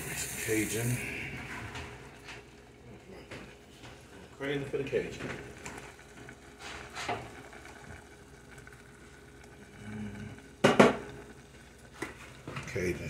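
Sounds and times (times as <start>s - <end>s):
kitchenware clattering: 10.6s - 11.1s.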